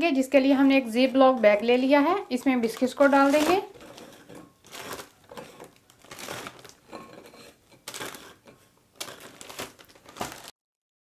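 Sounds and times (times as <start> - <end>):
plastic bag crinkling: 1.7 - 10.5.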